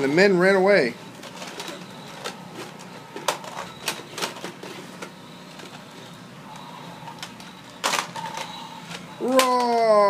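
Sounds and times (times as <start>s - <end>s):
plastic toys clacking together: 1.2s - 5.7s, 7.1s - 10.0s.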